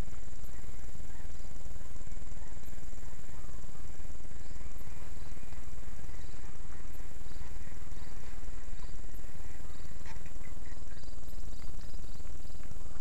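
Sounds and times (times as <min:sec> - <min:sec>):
insects whining and chirping: 0:00.0 - 0:13.0
low steady rumble: 0:00.0 - 0:13.0
faint clicks: 0:09.9 - 0:13.0.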